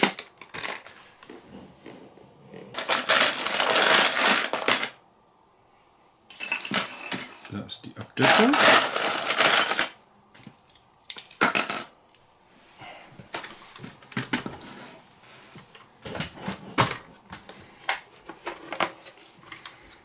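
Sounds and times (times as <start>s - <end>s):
plastic parts clicking and clattering: 0.0s - 1.4s, 2.7s - 5.0s, 6.3s - 7.6s, 8.2s - 11.9s, 16.0s - 20.0s.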